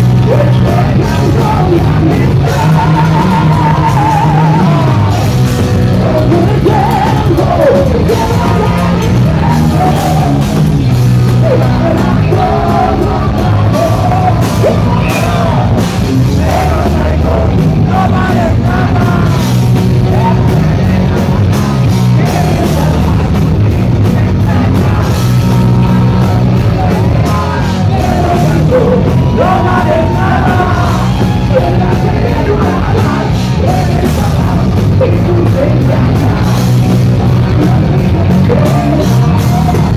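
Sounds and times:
electric guitar: 0.0 - 39.9
live rock band playing: 0.0 - 39.9
singer yelling vocals: 0.0 - 39.9.

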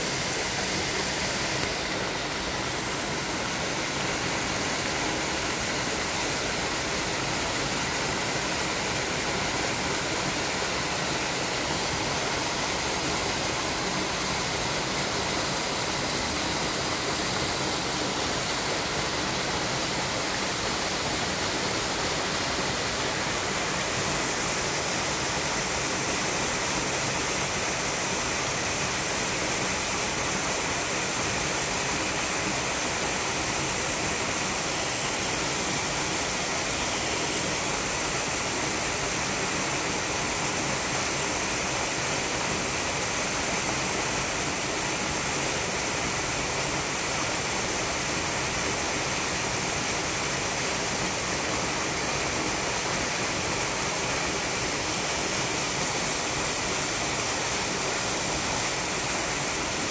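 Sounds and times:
waterfall rushing over boulders: 0.0 - 59.9.

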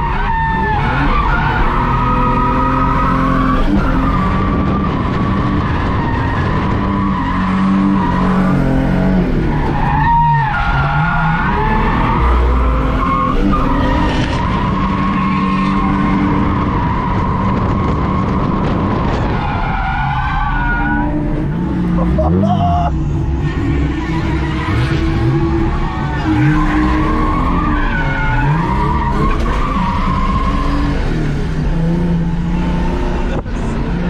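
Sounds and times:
car engine at high revs: 0.0 - 34.0.

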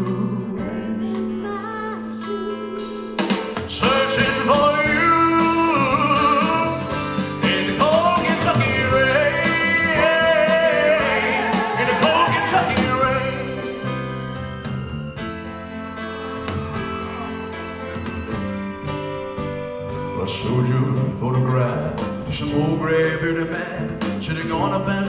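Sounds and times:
band with guitar: 2.4 - 25.0
man singing country ballad: 3.7 - 13.7, 20.2 - 25.0.

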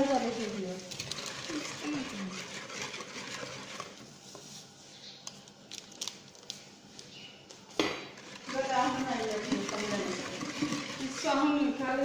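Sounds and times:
whisk beating batter: 0.0 - 4.5, 8.0 - 12.0.

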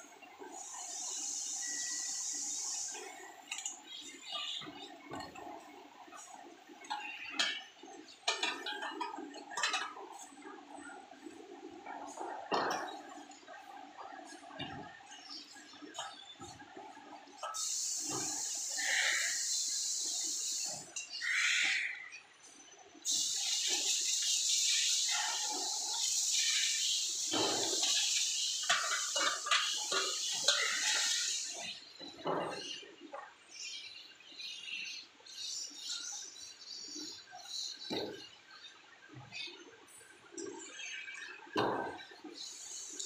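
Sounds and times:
workshop noise hiss: 0.0 - 38.6, 41.5 - 43.0.

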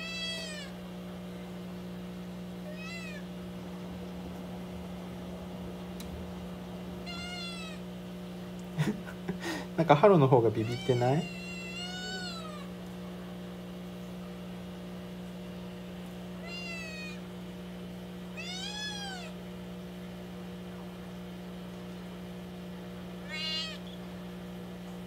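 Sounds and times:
kitten meowing: 0.0 - 0.8, 2.6 - 3.3, 7.0 - 7.8, 10.6 - 12.7, 16.4 - 17.2, 18.3 - 19.4, 23.2 - 24.0.

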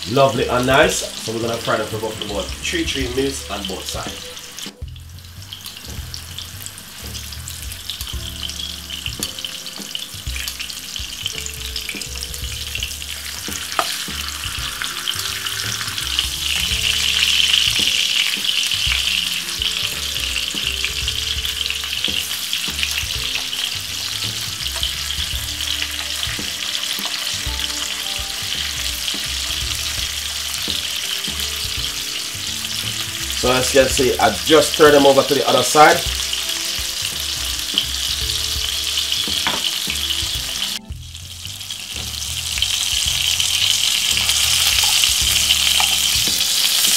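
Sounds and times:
sausages sizzling in hot oil: 0.0 - 46.9.

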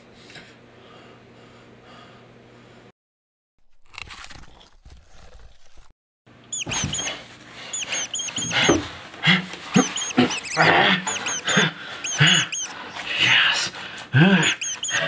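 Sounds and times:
rapid high-pitched squeaking: 6.5 - 8.7, 9.8 - 13.1, 14.4 - 15.0.

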